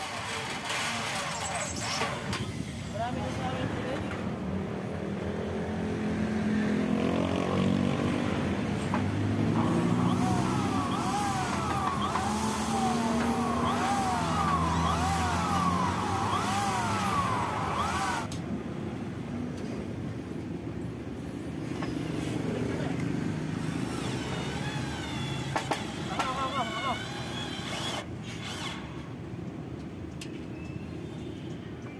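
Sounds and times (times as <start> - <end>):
cordless drill driving screws: 9.4 - 18.4, 23.6 - 29.0.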